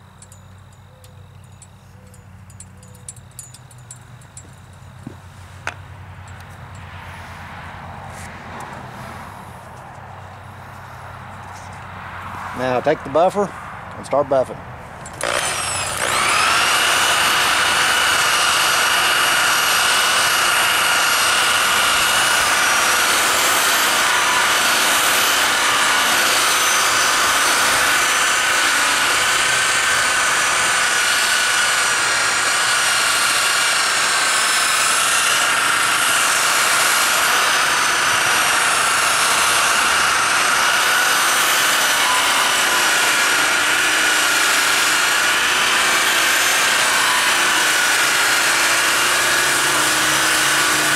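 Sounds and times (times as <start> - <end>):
electric buffer whining: 15.0 - 50.9.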